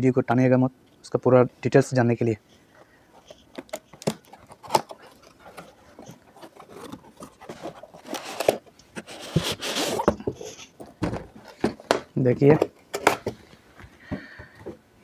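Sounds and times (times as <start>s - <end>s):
fabric case scraping out of box: 5.5s - 10.7s.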